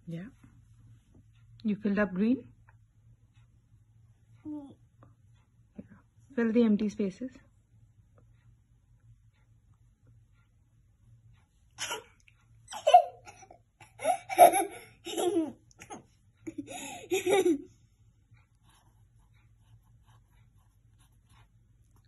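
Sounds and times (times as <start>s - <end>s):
person giggling: 12.7s - 17.7s.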